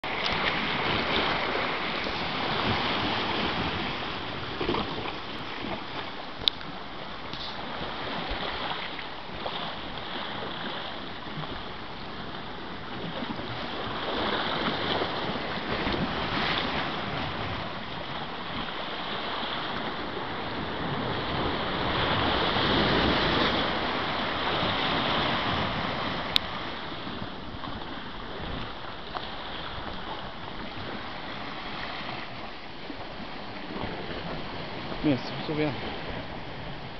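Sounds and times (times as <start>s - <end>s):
surf washing around rocks: 0.0s - 36.9s.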